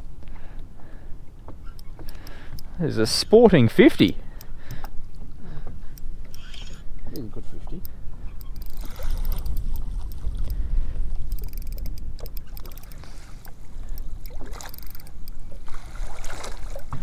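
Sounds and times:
water lapping against boat hull: 0:00.4 - 0:02.8, 0:04.1 - 0:17.0
light clicks and ticks: 0:01.4 - 0:02.8, 0:04.4 - 0:10.6, 0:11.2 - 0:15.4
wind rumble on microphone: 0:07.1 - 0:14.6.

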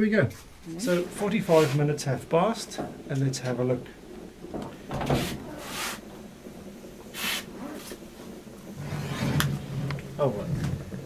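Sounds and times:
short hissing bursts: 0:04.8 - 0:08.2.

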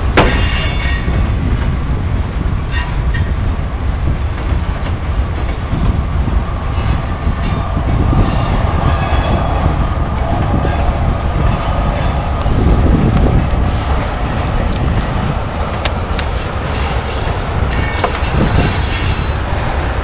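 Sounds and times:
train wheels rumbling on track: 0:00.0 - 0:20.0
high wheel squeals: 0:16.3 - 0:19.5.

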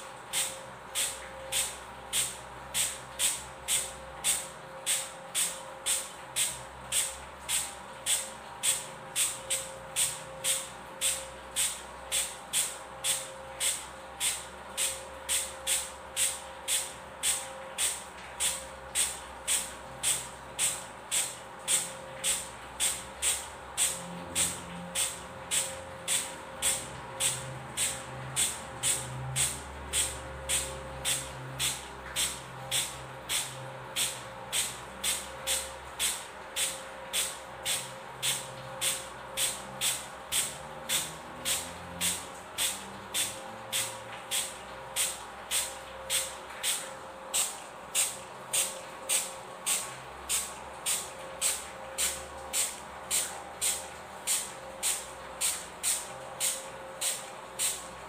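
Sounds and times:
spray bottle squirting water: 0:00.3 - 0:57.9.

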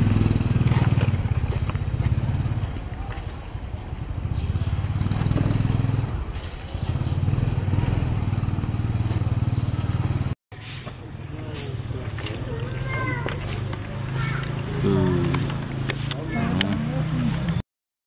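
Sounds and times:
small engine running: 0:11.3 - 0:17.6.

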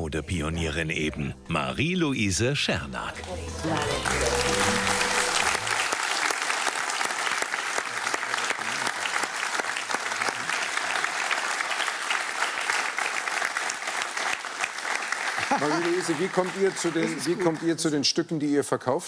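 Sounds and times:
music bed: 0:00.0 - 0:05.9
audience applauding: 0:03.1 - 0:18.1.

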